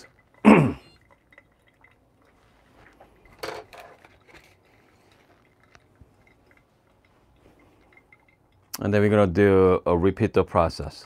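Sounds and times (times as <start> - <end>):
soft handling rustle: 2.2 - 8.3.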